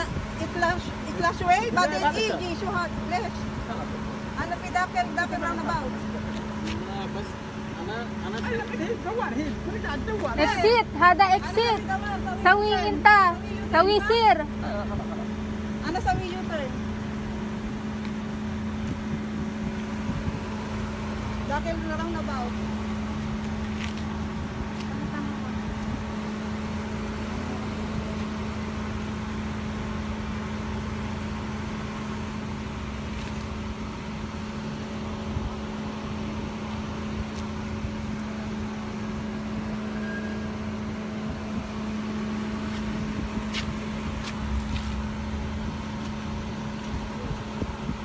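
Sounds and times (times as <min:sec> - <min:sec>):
car engine idling: 0:00.0 - 0:48.0.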